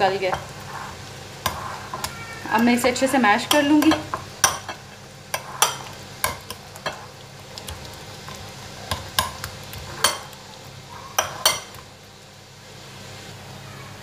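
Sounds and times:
spoon mashing pumpkin: 0.2 - 2.8, 3.4 - 11.9
spoon clinking against ceramic bowl: 10.0 - 10.4, 11.2 - 11.8.

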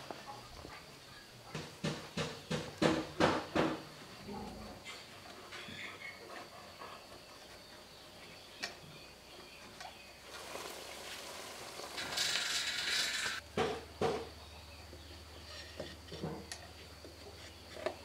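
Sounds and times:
knocks: 1.5 - 3.9, 13.5 - 14.3.

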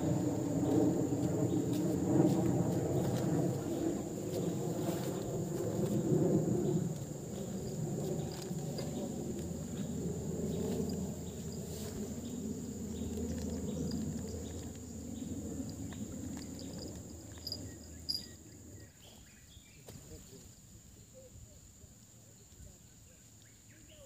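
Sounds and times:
low rumble: 0.0 - 18.7
insects trilling: 0.0 - 24.0.

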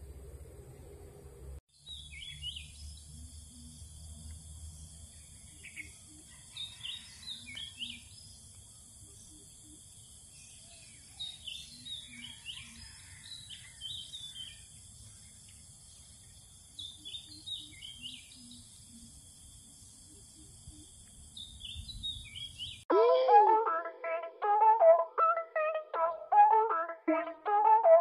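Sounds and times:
birds chirping: 4.6 - 19.3, 19.9 - 22.8.

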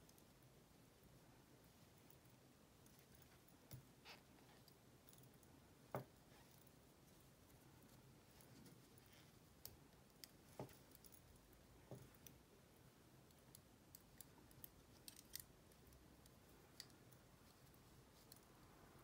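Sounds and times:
knitting needles clicking: 0.0 - 1.0, 7.8 - 18.6.

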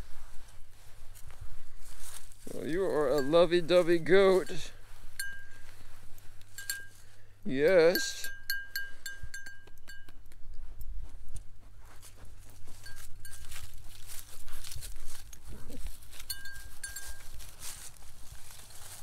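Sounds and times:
rustling in dry leaves: 0.0 - 7.4, 11.7 - 19.0
light metallic ring: 3.0 - 3.8, 5.1 - 10.4, 12.7 - 13.8, 16.1 - 17.5.

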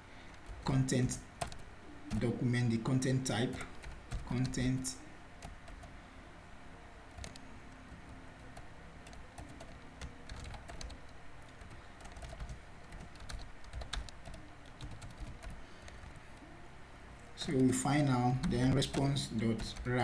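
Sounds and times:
keyboard typing clicks: 7.1 - 16.5.

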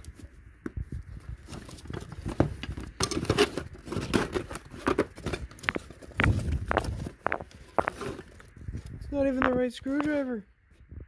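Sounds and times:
tool bag rustling: 1.4 - 8.6.

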